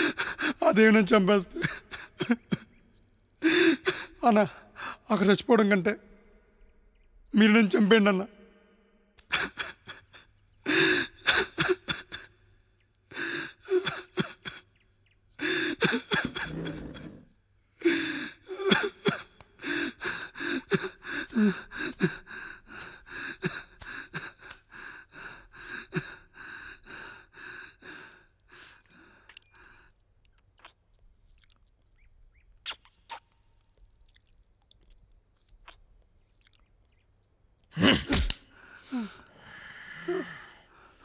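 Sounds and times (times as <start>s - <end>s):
man gasping and sobbing: 0.0s - 2.8s, 3.4s - 5.1s, 9.2s - 12.5s, 13.1s - 14.8s, 15.4s - 17.2s, 17.8s - 30.0s, 37.7s - 41.0s.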